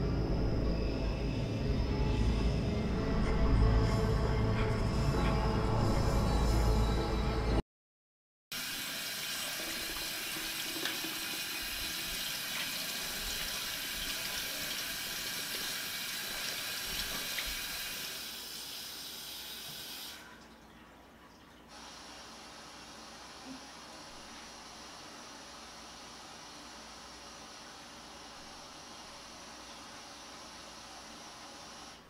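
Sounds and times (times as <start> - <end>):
faucet water splashing into sink: 8.6 - 21.6.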